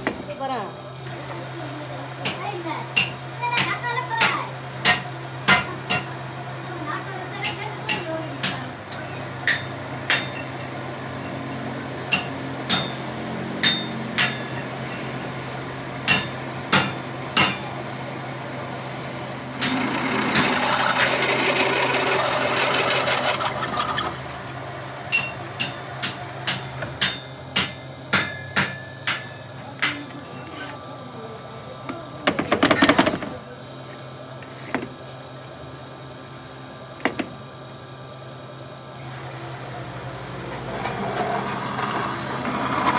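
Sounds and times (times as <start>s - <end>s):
lathe motor hum: 0.6s - 28.2s, 30.1s - 42.9s
rough metal cutting noise: 7.4s - 17.6s, 19.0s - 30.8s, 39.0s - 42.9s.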